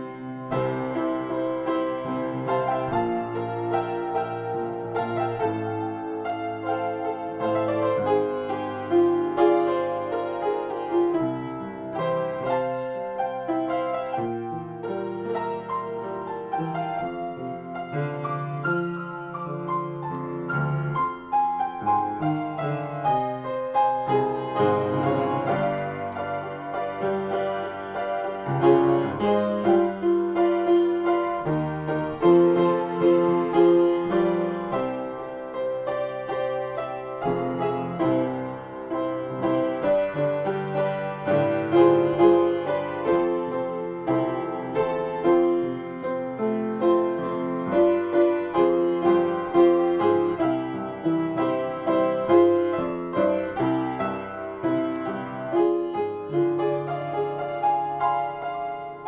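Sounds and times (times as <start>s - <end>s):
solo piano improvisation: 0.0s - 59.0s.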